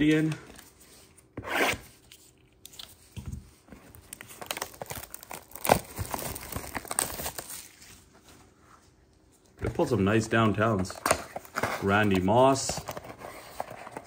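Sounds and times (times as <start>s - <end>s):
plastic shrink wrap crackling: 4.0s - 7.9s.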